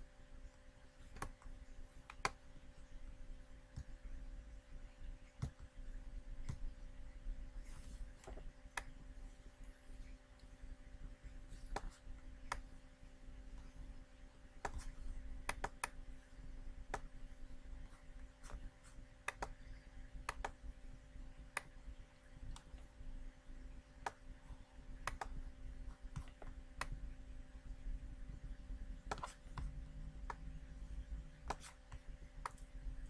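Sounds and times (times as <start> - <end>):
faint electrical hum: 0.0 - 33.0.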